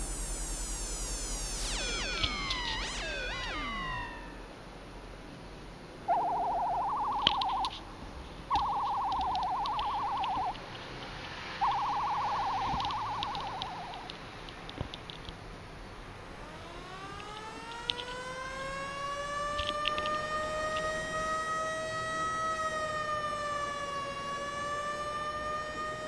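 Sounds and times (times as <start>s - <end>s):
trilled warbling calls: 0.6s - 4.5s, 6.1s - 7.9s, 8.5s - 10.8s, 11.6s - 14.2s.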